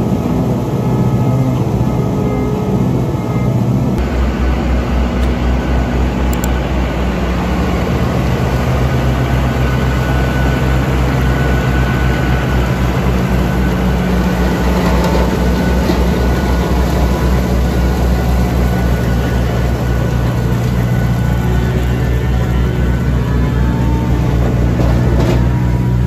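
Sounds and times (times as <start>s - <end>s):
tractor engine under load: 0.0s - 26.0s
machine chopping and blowing straw: 7.3s - 26.0s.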